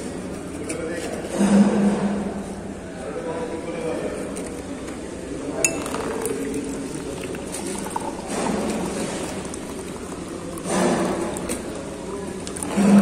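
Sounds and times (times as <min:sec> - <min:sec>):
steel tumbler clinking: 0:05.6 - 0:11.8
drink pouring into tumbler: 0:05.6 - 0:13.0.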